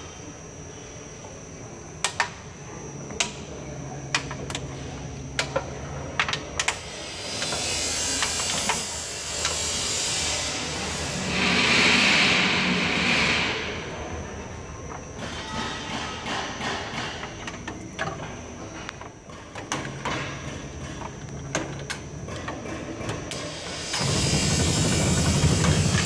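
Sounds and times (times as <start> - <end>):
machine humming: 0.0 - 15.2, 20.6 - 26.0
steady hiss: 6.6 - 14.1
machine clicks and knocks: 15.2 - 23.5.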